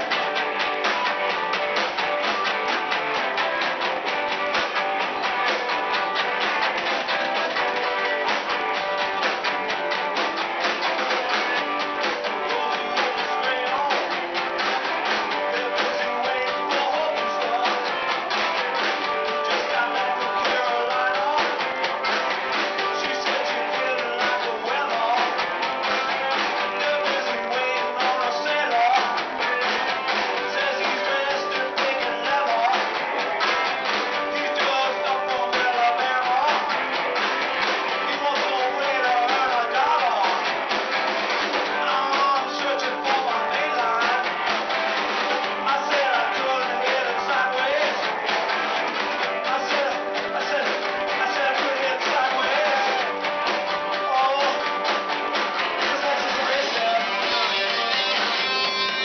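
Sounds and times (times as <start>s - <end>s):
rock band playing: 0.0s - 59.0s
harmonica wailing: 56.8s - 59.0s.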